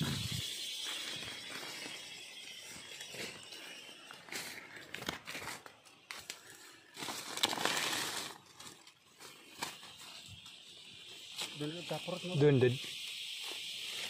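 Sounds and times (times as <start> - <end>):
footsteps crunching dry leaves: 0.0 - 9.4
rustling undergrowth: 0.0 - 11.6.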